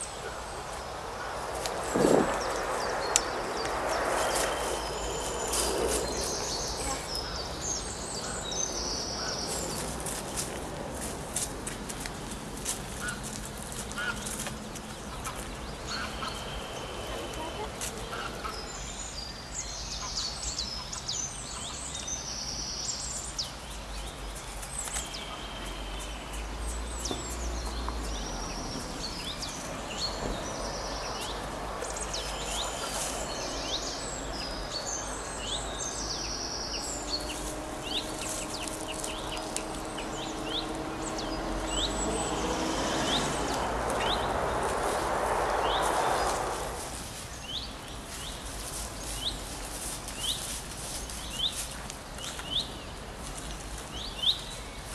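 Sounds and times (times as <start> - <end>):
rushing noise: 0.0 - 11.9, 28.2 - 49.2
outdoor ambience: 0.0 - 54.9
small birds chirping: 0.0 - 54.9.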